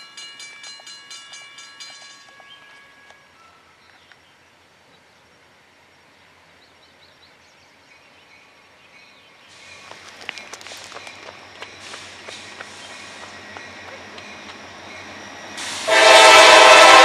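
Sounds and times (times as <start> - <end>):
freight train rolling hiss: 9.4 - 17.0.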